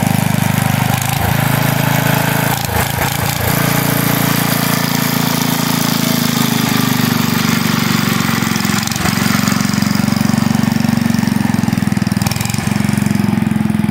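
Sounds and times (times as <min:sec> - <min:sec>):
lawn tractor engine running: 0:00.0 - 0:13.9.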